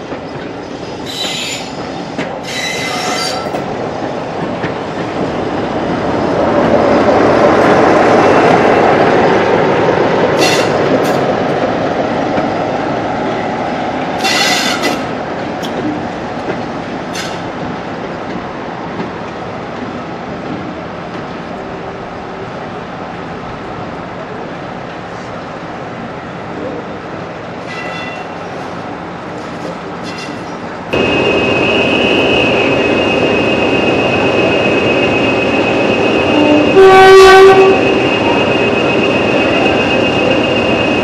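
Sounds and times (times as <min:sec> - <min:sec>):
train wheels rumbling on rails: 0:00.0 - 0:41.0
high-pitched wheel squeals: 0:02.4 - 0:03.5.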